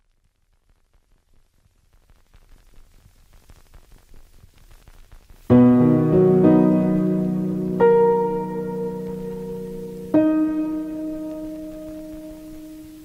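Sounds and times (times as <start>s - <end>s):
faint crackle: 0.0s - 13.0s
piano chords: 5.5s - 13.0s.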